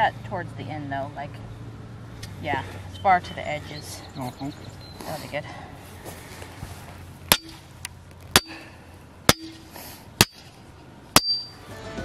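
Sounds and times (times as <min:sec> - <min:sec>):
metal post clanking when pounded: 0:07.3 - 0:07.7, 0:08.3 - 0:08.6, 0:09.3 - 0:10.5, 0:11.2 - 0:11.6.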